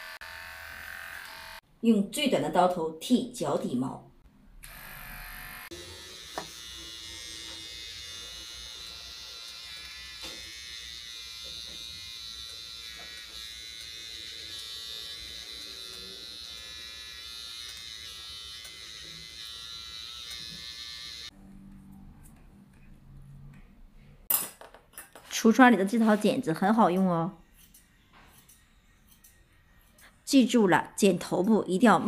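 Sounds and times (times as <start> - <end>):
electric clipper whine: 0.0 - 1.6, 4.6 - 21.4.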